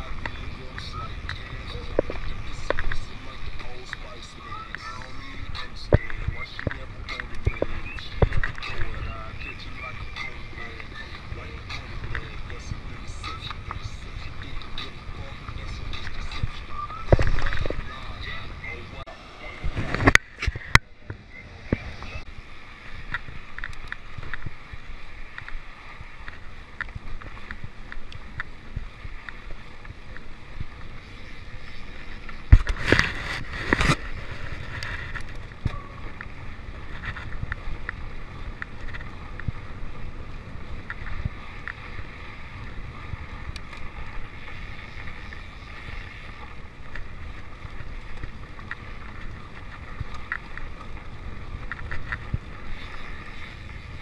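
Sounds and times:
wind buffeting microphone: 0.0s - 54.0s
bike rattling and clicking: 23.0s - 54.0s.

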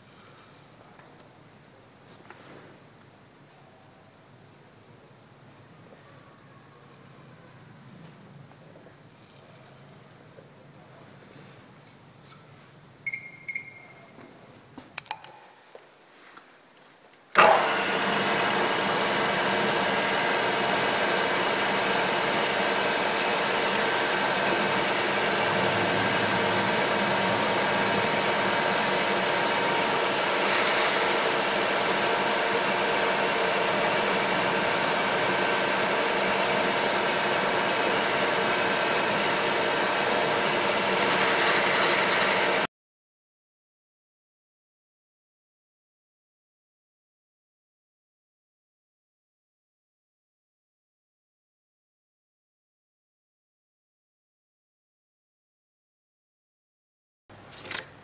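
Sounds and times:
milling machine spindle whine: 17.4s - 42.7s.

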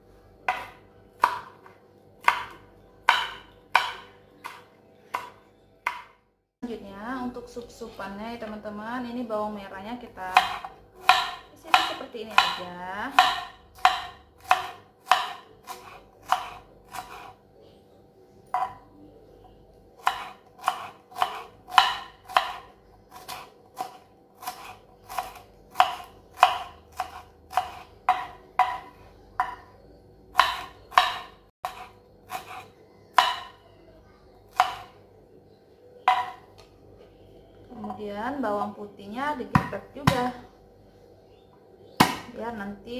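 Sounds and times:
knife tapping on wooden board: 2.2s - 6.1s, 13.2s - 15.4s, 25.8s - 29.6s, 30.4s - 31.3s.

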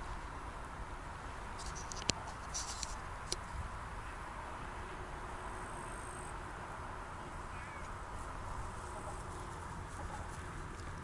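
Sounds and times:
sharp clicks and rustles: 1.6s - 3.5s.

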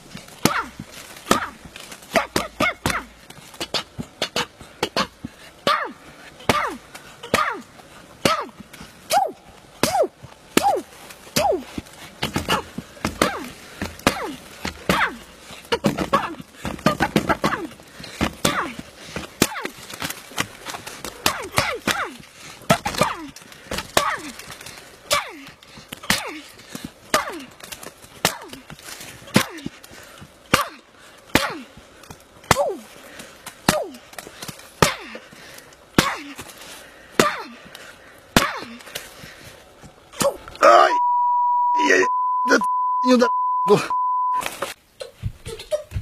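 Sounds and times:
punches cracking on tree trunk: 0.0s - 5.8s, 9.8s - 39.5s
person shouting: 40.6s - 41.0s, 41.8s - 43.9s.

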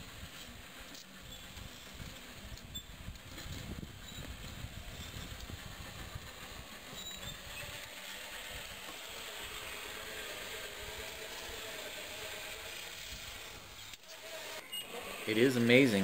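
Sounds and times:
faint motor whine: 0.0s - 16.0s.

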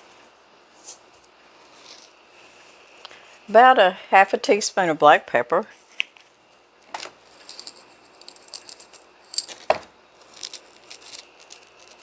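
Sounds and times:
pepper shaker rattling ticks: 7.3s - 9.6s, 10.2s - 12.0s.

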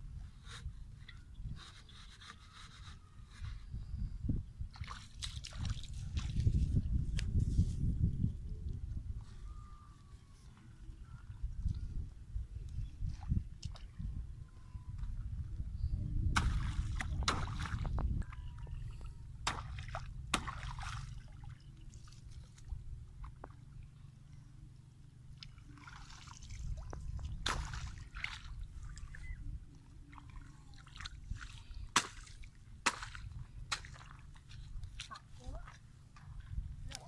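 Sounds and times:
water sloshing and splashing: 4.7s - 6.8s, 16.4s - 24.0s, 25.2s - 37.0s.

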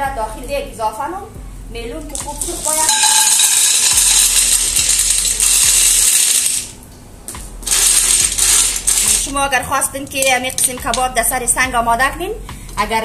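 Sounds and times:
pebbles clattering into a pot: 2.1s - 6.8s, 7.6s - 11.2s.

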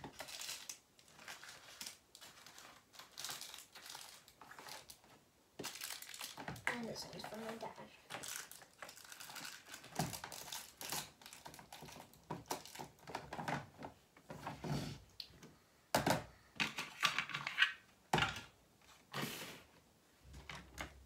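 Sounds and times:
hands handling small objects: 0.0s - 14.5s.

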